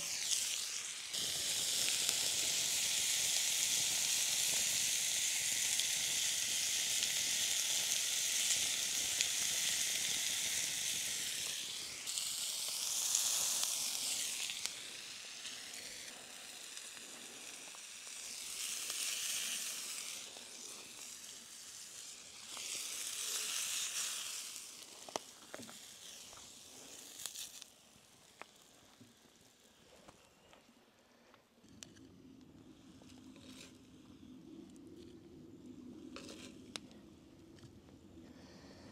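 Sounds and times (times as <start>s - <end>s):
steak sizzling in a pan: 0.0s - 29.8s.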